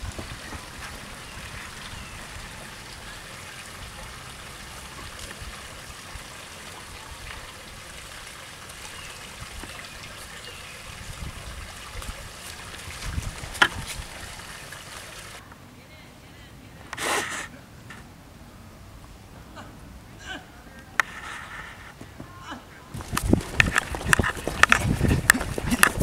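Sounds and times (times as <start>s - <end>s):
creek water trickling: 0.0s - 15.4s, 22.9s - 26.0s.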